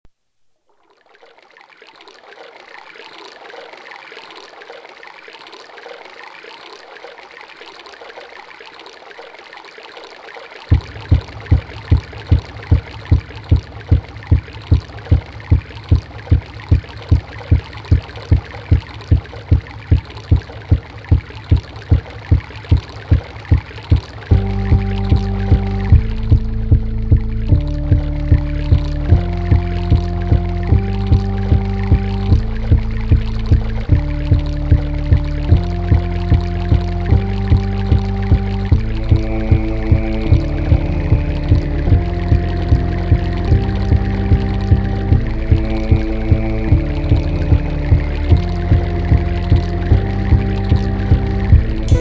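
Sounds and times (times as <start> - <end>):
flowing water hiss: 0.7 - 52.0
steady low thump: 10.7 - 52.0.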